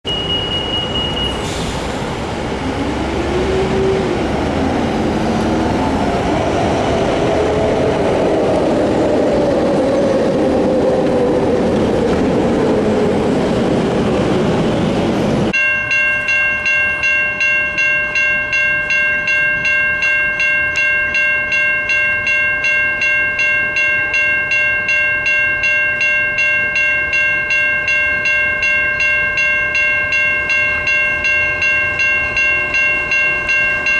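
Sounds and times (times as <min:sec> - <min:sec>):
crossing warning bell ringing: 0:00.0 - 0:11.8, 0:15.5 - 0:33.9
road traffic rushing: 0:00.1 - 0:15.6.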